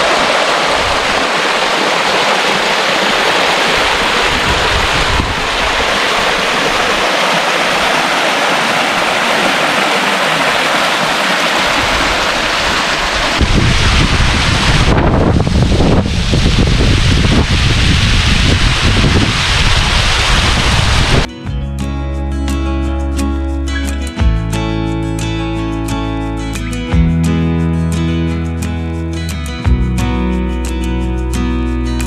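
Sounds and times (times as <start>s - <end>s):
stream rushing over rocks: 0.0s - 21.3s
wind rumble on microphone: 3.7s - 7.4s, 11.7s - 21.3s.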